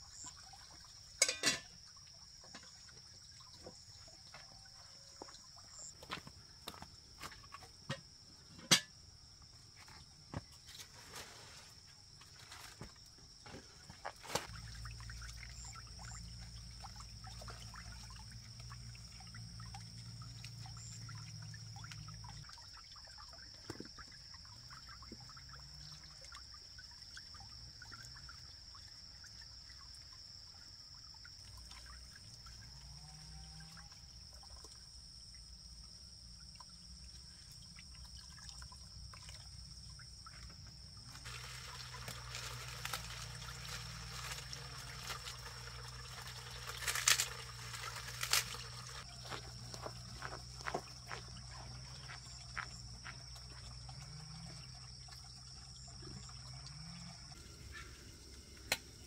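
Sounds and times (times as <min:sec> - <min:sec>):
water splashing in basin: 0:00.0 - 0:09.0, 0:12.1 - 0:57.4
high insect drone: 0:39.5 - 0:59.0.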